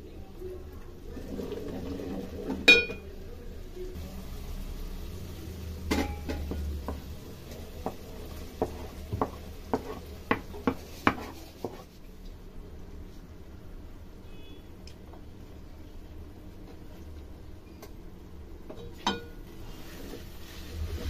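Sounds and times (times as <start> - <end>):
food scraped into pot: 7.5 - 12.1, 19.5 - 21.0
utensils clinking on pot: 18.8 - 19.4.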